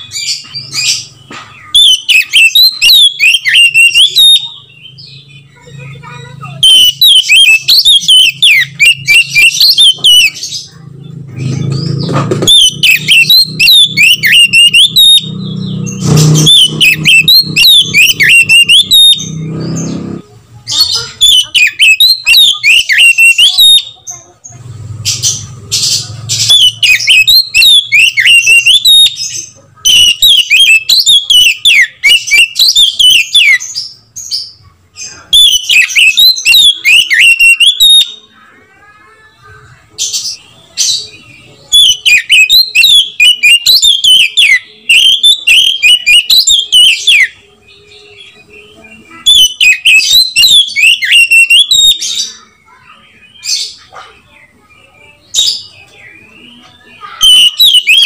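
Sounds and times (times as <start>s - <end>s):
bird singing whistled phrases: 1.6s - 10.5s, 12.4s - 19.5s, 20.9s - 24.0s, 26.3s - 33.9s, 35.1s - 38.3s, 40.8s - 52.4s, 55.2s - 58.0s.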